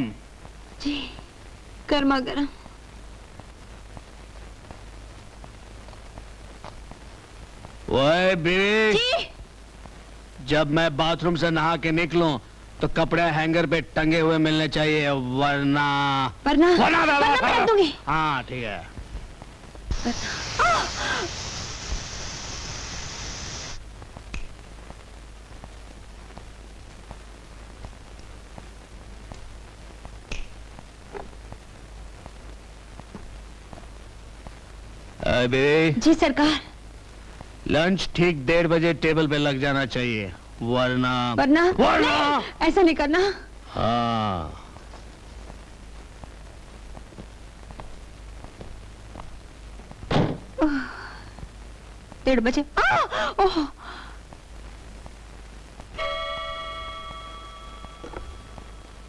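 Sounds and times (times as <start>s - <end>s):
low steady hum: 0.0s - 59.0s
pressure cooker steam hissing: 19.9s - 23.8s
faint clicks: 24.0s - 26.5s
wooden door knock shut: 50.1s - 50.5s.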